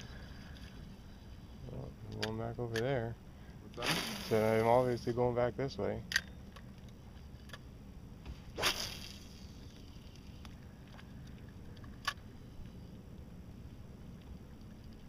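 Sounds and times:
fishing rod swish: 8.4s - 9.5s.

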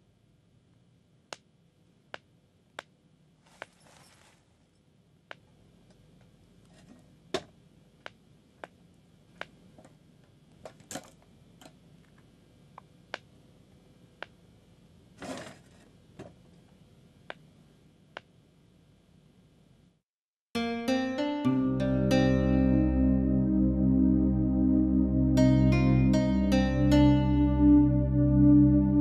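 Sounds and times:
faint hum: 21.6s - 29.0s.

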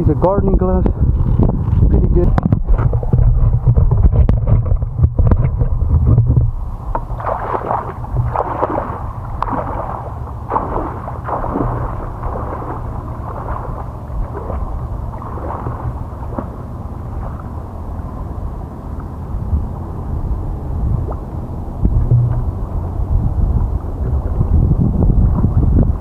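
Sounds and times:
wind rumble on microphone: 0.0s - 26.0s
water splashing from wading: 6.9s - 26.0s.

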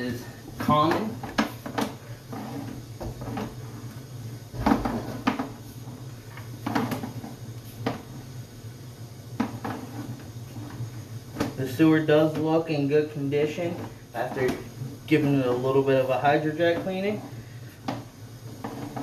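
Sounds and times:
steady low hum: 0.0s - 19.0s
cable reel knocks and clunks: 4.6s - 5.6s.

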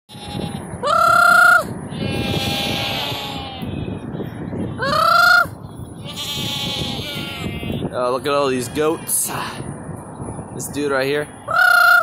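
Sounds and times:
goat bleating: 0.1s - 1.2s, 1.9s - 4.0s, 4.6s - 9.6s
man imitating goat bleat: 0.1s - 4.0s, 6.0s - 9.6s.

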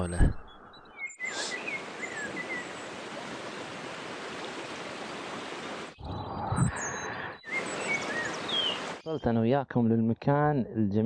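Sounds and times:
bird chirps: 0.0s - 2.9s, 6.0s - 9.4s
creek running over rocks: 1.5s - 6.0s.

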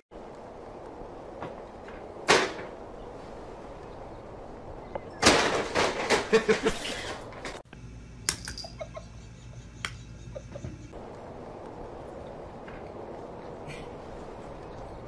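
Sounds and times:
electrical hum: 7.2s - 15.0s.

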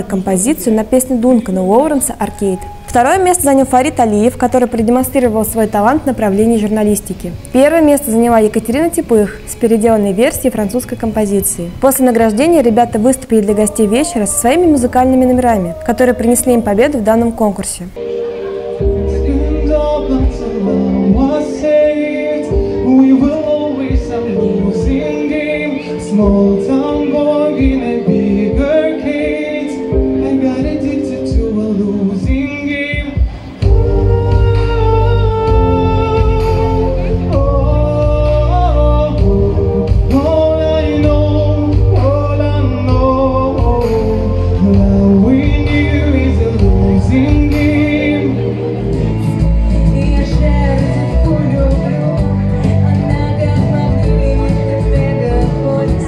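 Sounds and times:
amplified backing music: 0.0s - 56.0s
instrumental accompaniment: 0.0s - 56.0s
man singing into a microphone: 13.2s - 16.4s, 19.0s - 56.0s.

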